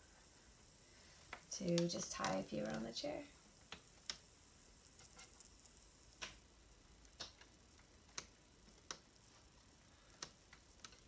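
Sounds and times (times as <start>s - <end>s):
faint clicks and taps: 1.2s - 6.4s, 7.0s - 11.0s.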